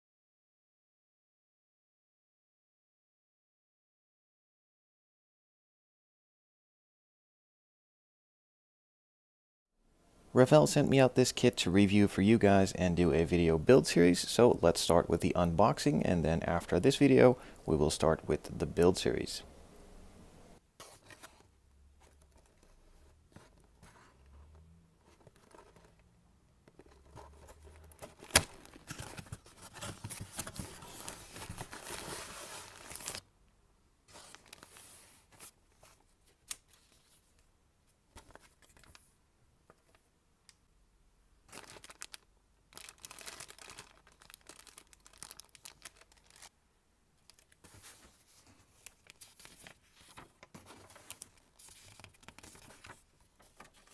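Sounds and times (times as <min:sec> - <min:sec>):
paper sheets rustling: 0:26.7 - 0:33.2, 0:34.1 - 0:37.3, 0:41.5 - 0:46.5, 0:47.3 - 0:53.9
packaging tearing and crinkling: 0:41.5 - 0:46.5
plastic bag rustling: 0:41.5 - 0:46.5.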